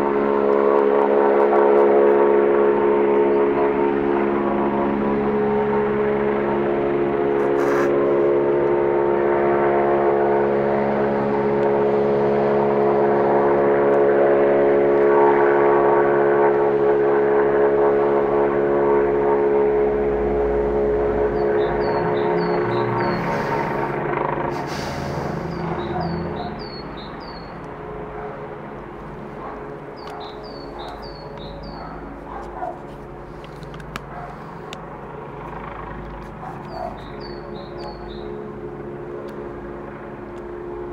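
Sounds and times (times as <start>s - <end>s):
helicopter in flight: 0.0s - 40.9s
small bird chirping: 21.4s - 23.4s, 25.5s - 27.6s, 30.0s - 32.0s, 36.5s - 38.4s.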